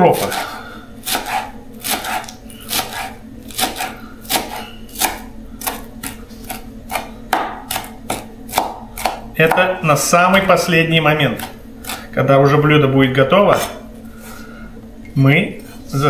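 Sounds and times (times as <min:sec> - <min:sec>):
knife chopping herbs: 0:00.0 - 0:12.2.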